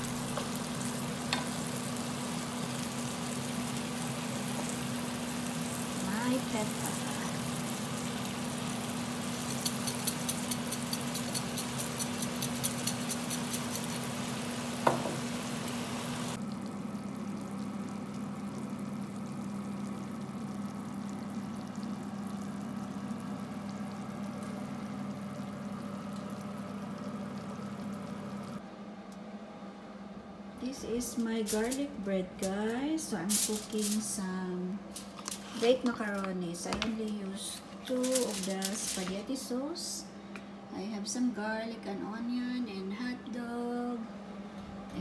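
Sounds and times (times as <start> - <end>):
food sizzling in a frying pan: 0.0 - 28.4
steady hum and hiss: 0.0 - 45.0
pepper grinder clicking: 9.4 - 14.0.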